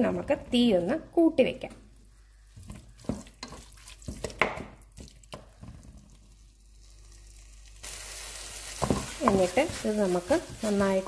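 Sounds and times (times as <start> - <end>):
frying sizzle: 5.2 - 11.0.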